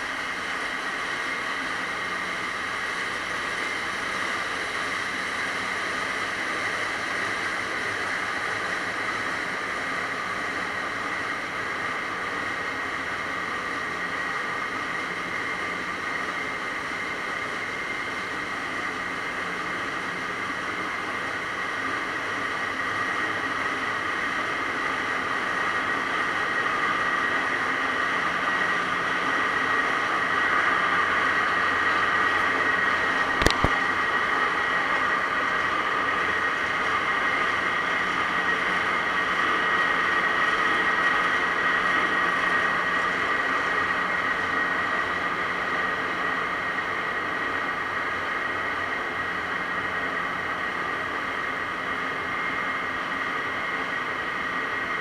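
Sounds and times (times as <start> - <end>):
engine room machinery drone: 0.0 - 55.0
steady high whine: 0.0 - 55.0.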